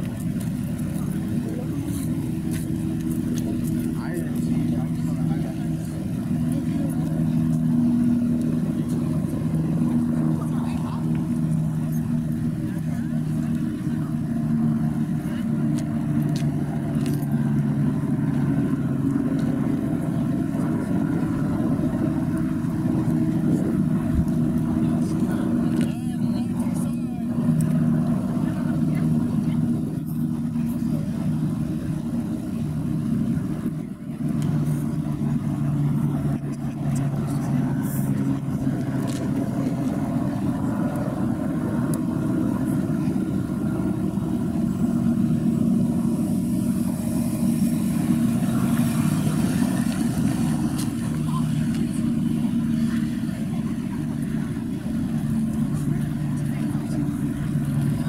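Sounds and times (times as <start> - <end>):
low engine drone: 0.0 - 58.0.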